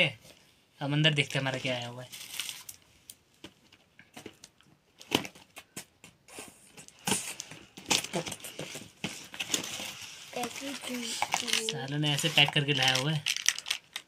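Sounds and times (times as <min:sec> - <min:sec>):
clicks scrapes and rustles: 0:08.2 - 0:14.0
packing tape tearing: 0:11.2 - 0:14.0.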